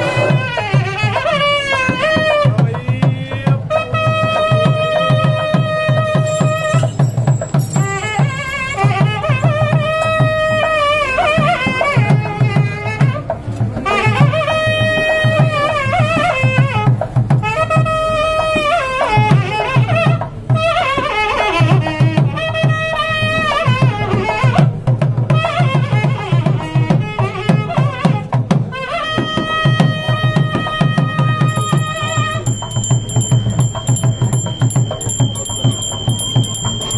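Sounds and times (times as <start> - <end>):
quick drum beat: 1.8 - 13.3, 23.8 - 36.9
melody: 6.2 - 9.8, 31.2 - 36.9.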